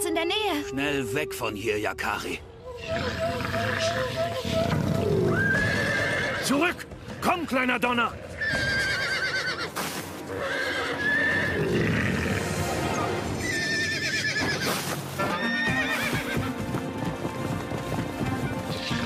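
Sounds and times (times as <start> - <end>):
background music: 0.0 - 19.0
cartoon horses whinnying: 2.7 - 6.5, 8.4 - 16.4
galloping hooves: 4.3 - 11.2, 13.5 - 19.0.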